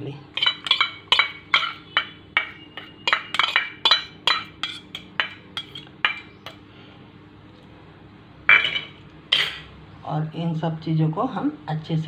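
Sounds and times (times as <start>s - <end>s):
steel spoon clinking on bowl: 0.4s - 6.6s.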